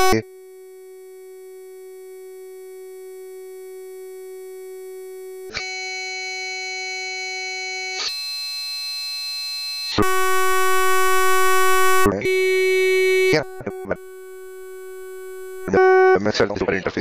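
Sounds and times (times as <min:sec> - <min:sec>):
sustained synthesizer note: 0:10.0 - 0:16.0.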